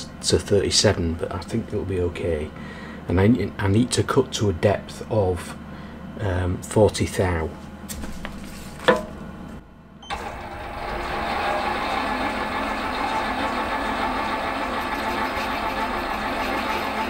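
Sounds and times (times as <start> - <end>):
lathe motor running: 10.1 - 17.0.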